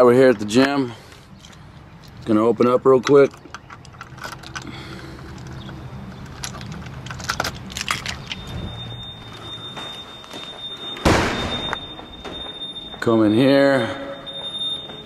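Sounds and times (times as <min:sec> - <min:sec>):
keys jangling in a door lock: 0:02.9 - 0:09.2
steady high electronic tone: 0:08.4 - 0:15.0.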